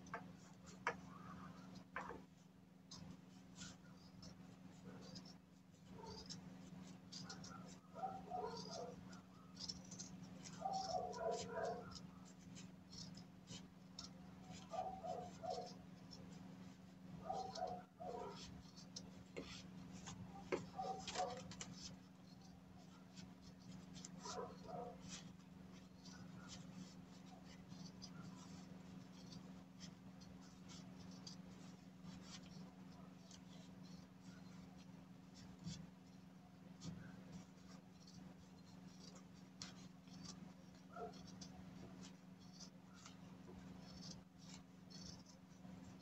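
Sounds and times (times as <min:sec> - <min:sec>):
steady low hum: 0:00.0 - 0:46.0
scissors snipping fabric: 0:17.3 - 0:22.0.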